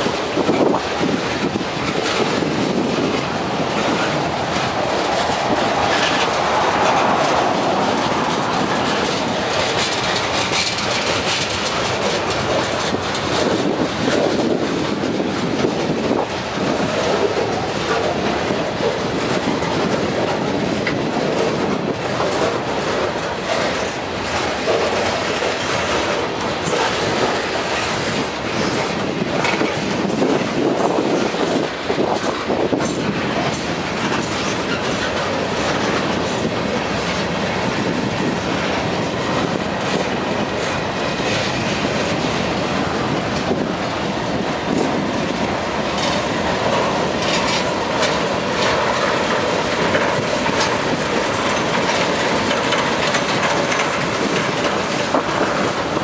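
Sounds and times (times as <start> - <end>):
train wheels rumbling on rail: 0.0 - 56.0
wheels clacking over rail joints: 0.0 - 56.0.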